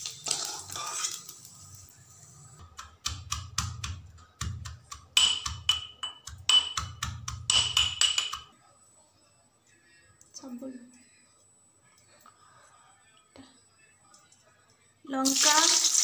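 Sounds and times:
eggs sizzling in oil: 0.0 - 2.3, 15.2 - 16.0
steel pestle pounding in mortar: 2.6 - 8.5.

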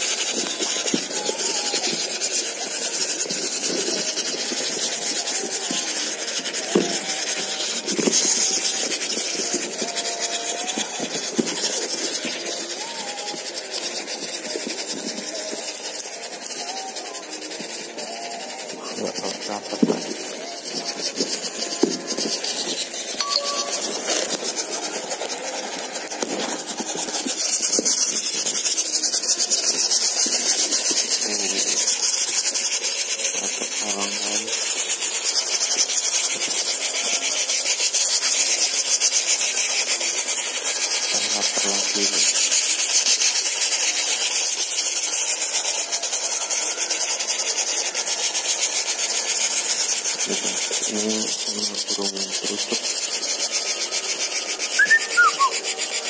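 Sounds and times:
nestlings hissing: 0.0 - 56.0
low-pitched bird calls: 54.6 - 55.7.

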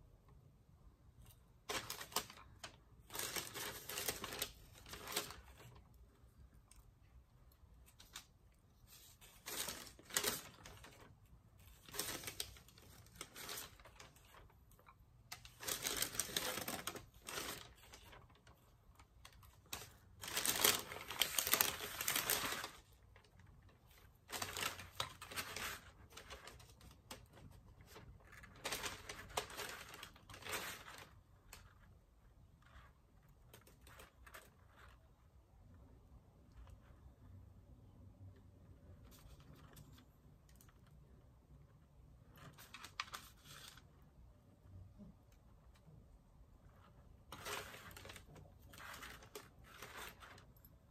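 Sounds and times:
rustling and crinkling of candies: 1.2 - 37.0, 46.6 - 50.9.

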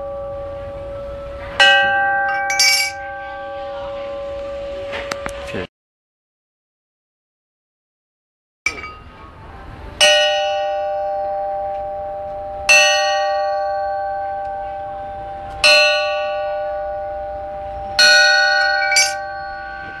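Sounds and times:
bronze gong ringing: 0.0 - 5.7, 10.0 - 20.0.

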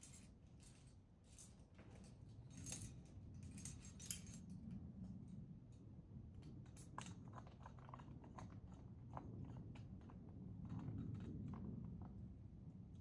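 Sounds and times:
climbing gear clinking: 0.0 - 4.4.

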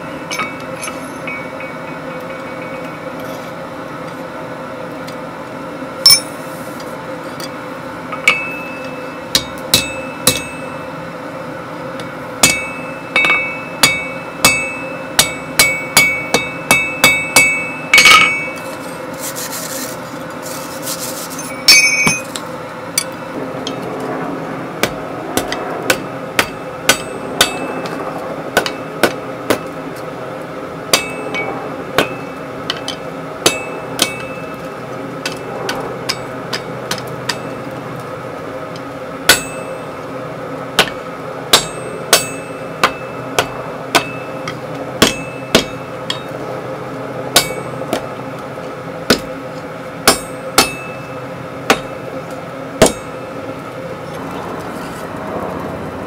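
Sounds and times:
hammer striking iron on anvil: 0.0 - 3.4, 6.0 - 6.4, 8.1 - 10.9, 12.0 - 18.7, 21.5 - 22.4, 24.8 - 29.8, 30.9 - 34.6, 35.2 - 37.6, 39.3 - 39.8, 40.8 - 46.4, 47.3 - 48.1, 49.1 - 49.3, 50.0 - 52.0, 52.8 - 53.2
steady hum: 0.0 - 56.0
scraping: 18.6 - 22.3.

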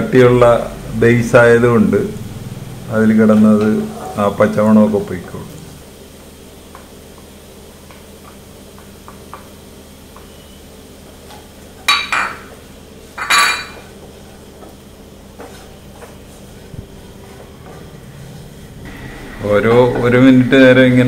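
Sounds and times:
kitchenware clinking: 11.8 - 14.0.

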